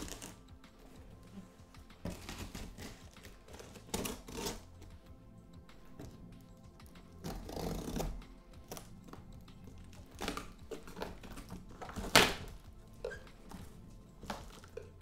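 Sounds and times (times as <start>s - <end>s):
packing tape scraping and tearing: 0.0s - 1.0s, 2.0s - 5.0s, 7.1s - 15.0s
soft background music: 0.0s - 15.0s.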